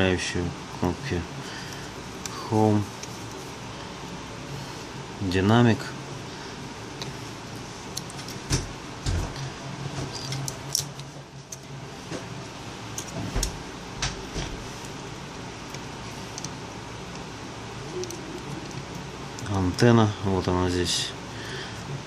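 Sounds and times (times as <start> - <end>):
metal tweezers clicking on parts: 18.0 - 19.9.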